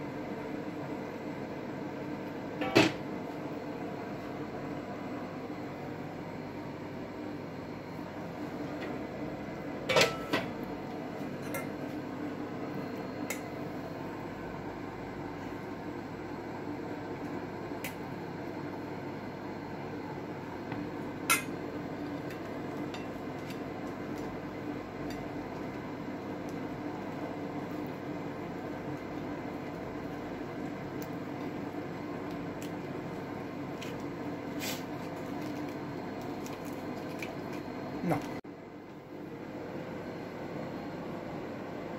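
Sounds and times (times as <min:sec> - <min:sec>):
steady background hum: 0:00.0 - 0:41.9
kitchenware clinking: 0:09.9 - 0:10.5
tortilla crackling as folded: 0:33.8 - 0:37.7.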